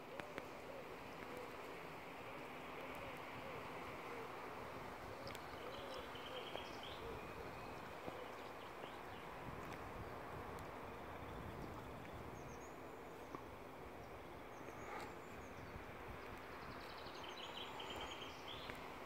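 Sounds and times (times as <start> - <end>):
outdoor background noise: 0.0 - 19.0
faint high bird calls: 5.0 - 9.4, 11.1 - 18.9.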